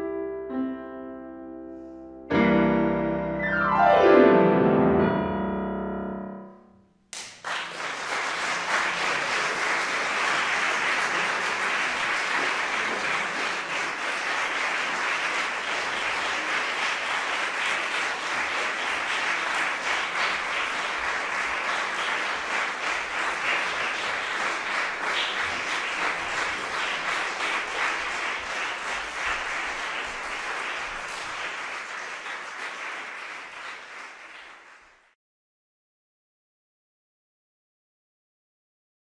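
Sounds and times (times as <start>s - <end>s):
audience applauding: 7.2s - 35.2s.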